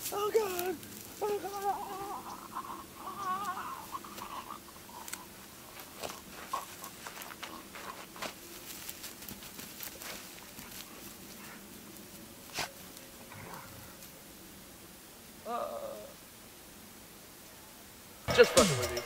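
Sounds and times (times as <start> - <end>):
dog snuffling: 0.0 - 14.2
rustling in grass: 0.0 - 15.4
wavering wailing cry: 0.2 - 5.5.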